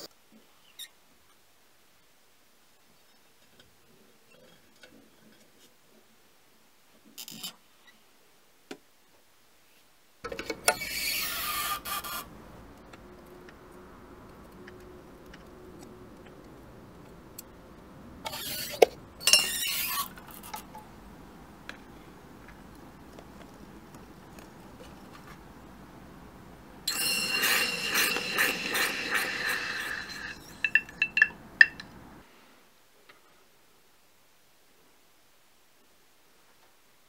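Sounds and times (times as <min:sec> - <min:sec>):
loud hissing bursts: 0:26.9 - 0:31.2.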